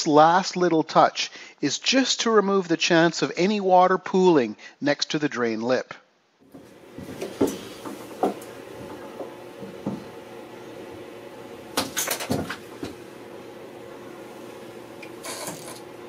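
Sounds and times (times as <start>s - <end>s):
steady low hum: 6.4s - 16.0s
wooden panel knocking on metal floor: 6.5s - 10.1s.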